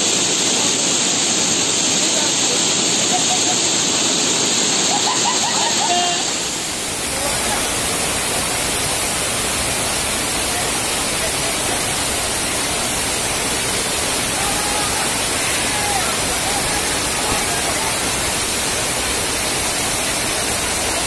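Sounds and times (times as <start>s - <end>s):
waterfall rushing over rocks: 0.0s - 21.0s
faint voices calling out: 14.2s - 18.2s.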